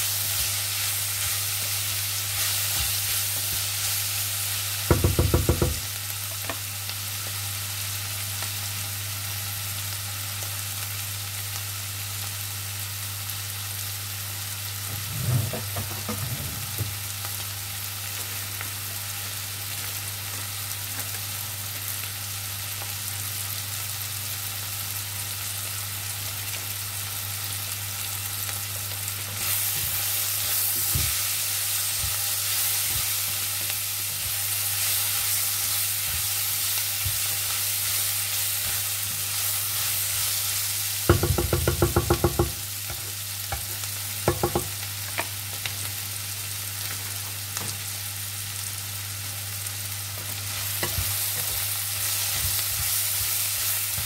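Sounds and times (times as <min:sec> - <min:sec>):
vegetables sizzling in oil: 0:00.0 - 0:54.0
spatula scraping and tapping pan: 0:41.1 - 0:45.3, 0:50.6 - 0:54.0.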